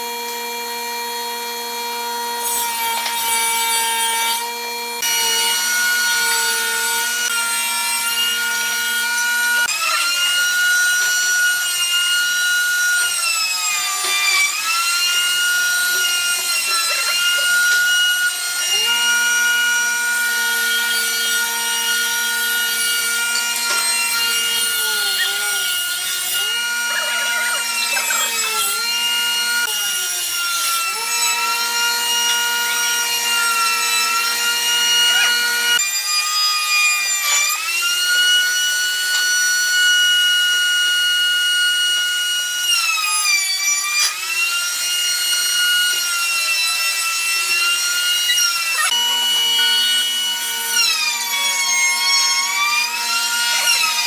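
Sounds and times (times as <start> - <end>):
machine motor whining: 4.8 - 35.8.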